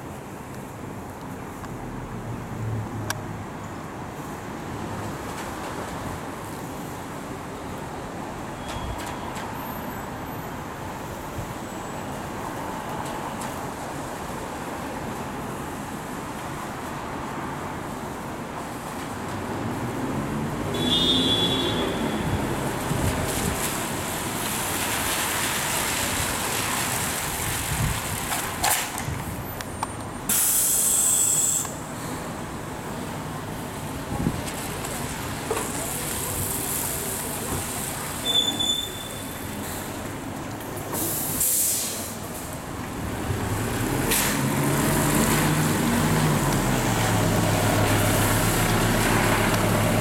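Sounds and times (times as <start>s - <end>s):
cars on a wet road: 0.0s - 50.0s
street noise: 0.0s - 50.0s
wind: 0.0s - 50.0s
wind rumbling on microphone: 22.2s - 24.4s, 26.0s - 29.6s, 34.0s - 35.3s
bus air brakes hissing: 30.2s - 32.4s, 40.8s - 42.5s.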